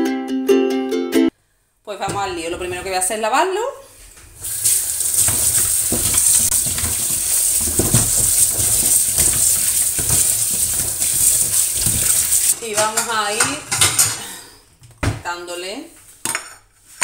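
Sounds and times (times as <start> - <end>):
hands rubbing peppers: 4.0 - 12.6
tap water running into sink: 4.0 - 12.6
peppers knocking on steel: 4.1 - 13.6.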